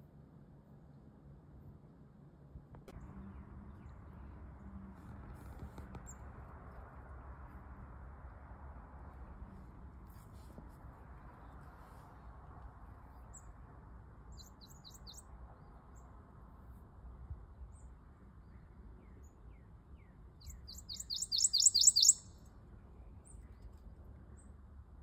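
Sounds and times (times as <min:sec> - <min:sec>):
bird singing high note: 0:20.7 - 0:22.3.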